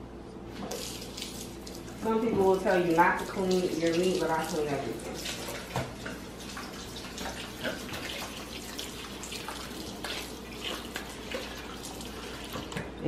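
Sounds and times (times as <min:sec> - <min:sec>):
water splashes: 0:00.6 - 0:12.8
faucet running into a bowl: 0:02.6 - 0:12.9.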